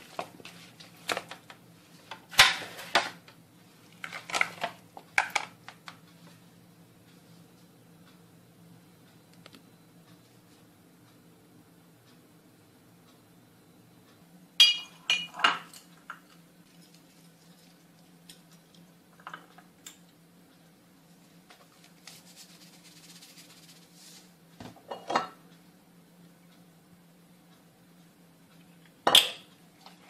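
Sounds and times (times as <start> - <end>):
faint steady hum: 0.0 - 30.0
glass dishes clinking: 14.6 - 15.9, 24.9 - 25.4.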